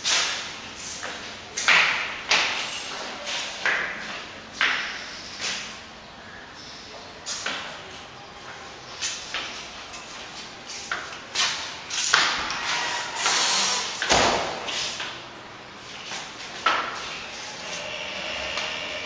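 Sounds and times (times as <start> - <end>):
footsteps on concrete echoing: 0.0 - 5.8, 14.0 - 17.9.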